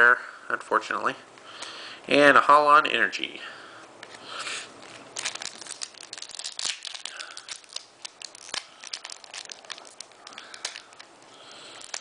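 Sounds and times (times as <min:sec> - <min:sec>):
foil wrapper crinkling and tearing: 0:04.8 - 0:12.0.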